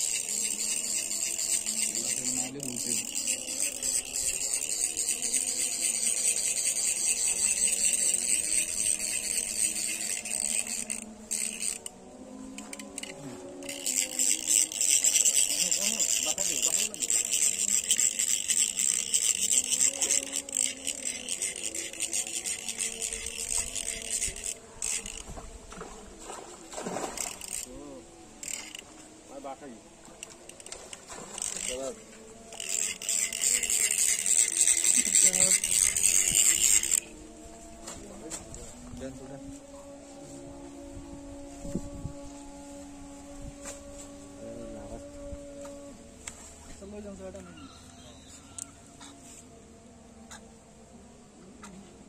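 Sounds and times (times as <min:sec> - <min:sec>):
insects chirring: 0:00.0 - 0:25.3
high-pitched buzzing drone: 0:00.0 - 0:52.0.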